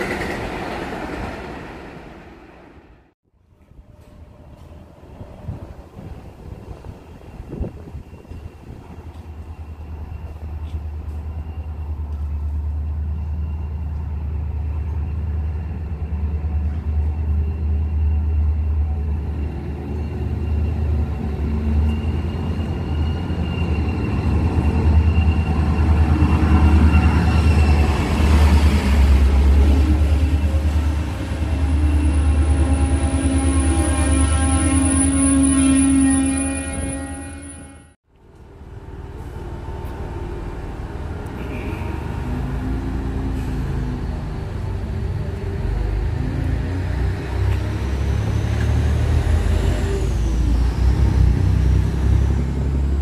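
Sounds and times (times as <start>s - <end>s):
diesel locomotive rumble: 3.6s - 53.0s
high-pitched squeal: 12.9s - 38.0s.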